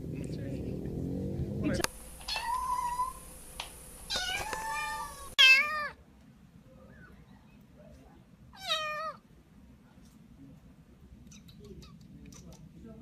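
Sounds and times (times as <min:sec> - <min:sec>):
kittens meowing: 0:01.7 - 0:03.2, 0:04.1 - 0:06.0.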